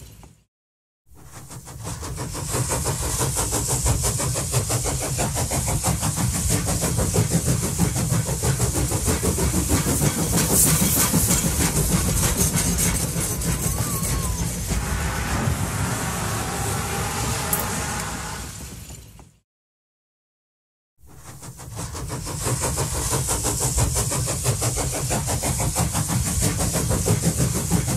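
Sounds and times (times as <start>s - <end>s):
steam train beats and rumble: 1.1s - 19.4s, 21.0s - 27.9s
rushing air: 7.1s - 18.9s.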